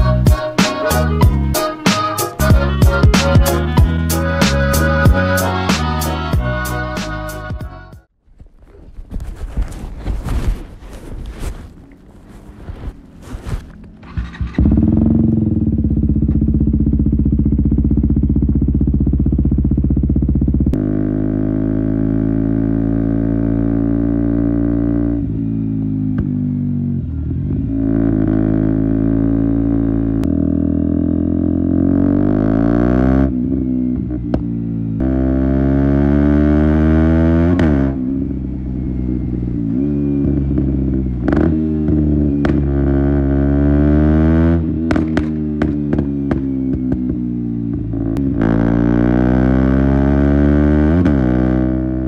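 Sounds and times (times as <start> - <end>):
exhaust pops and crackles: 8.4 - 14.9, 41.3 - 42.7, 44.8 - 47.2
motorcycle engine revving: 12.2 - 52.0.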